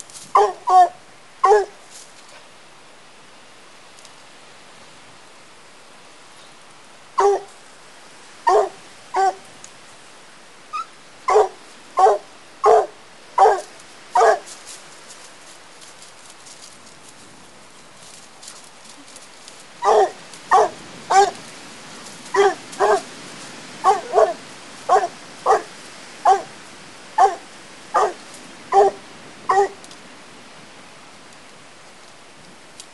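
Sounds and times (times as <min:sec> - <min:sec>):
dog barking: 0:00.4 - 0:01.8, 0:07.2 - 0:07.5, 0:08.5 - 0:09.4, 0:11.3 - 0:14.5, 0:19.8 - 0:21.4, 0:22.3 - 0:23.1, 0:23.8 - 0:26.5, 0:27.2 - 0:29.8.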